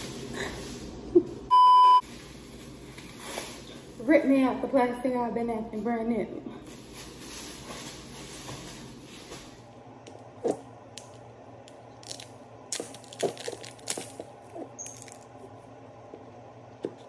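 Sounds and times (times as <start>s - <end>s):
plastic seal crinkling and tearing: 12.0s - 15.3s.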